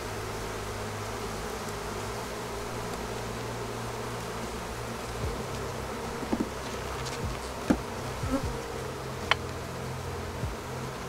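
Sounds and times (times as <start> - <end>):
honeybees buzzing: 0.0 - 11.0
hive tool clicking on wooden frames: 5.3 - 9.7.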